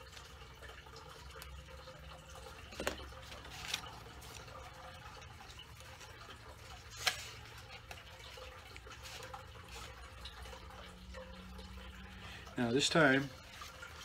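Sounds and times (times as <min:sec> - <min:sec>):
low steady hum: 0:00.0 - 0:14.0
paper rustling: 0:02.6 - 0:05.0, 0:05.8 - 0:10.2.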